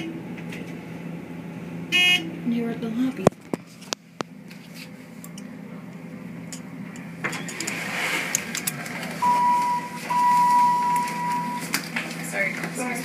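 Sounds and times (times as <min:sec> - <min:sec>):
elevator car humming: 0:00.0 - 0:13.0
electronic beeps: 0:09.2 - 0:11.6.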